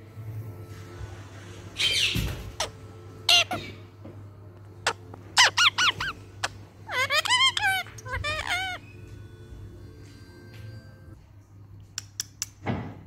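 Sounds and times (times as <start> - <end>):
parakeet squeaky calls: 1.8 - 3.8, 4.8 - 9.1.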